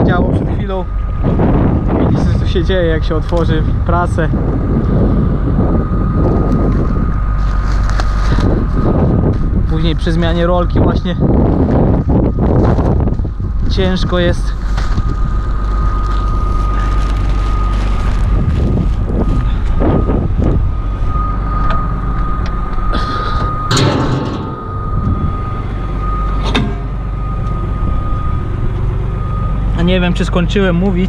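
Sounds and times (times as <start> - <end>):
high whine: 0.0 - 31.0
tractor engine idling: 20.7 - 31.0.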